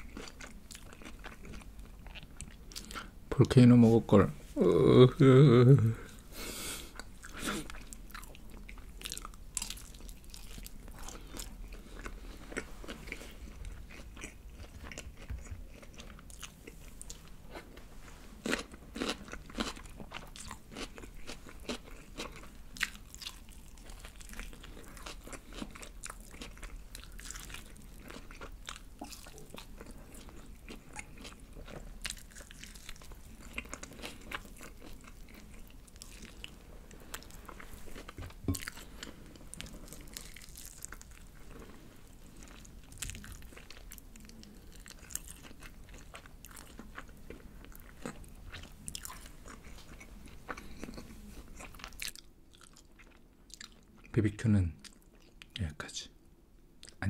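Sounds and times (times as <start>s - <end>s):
crunching fried chicken: 18.4s - 54.1s.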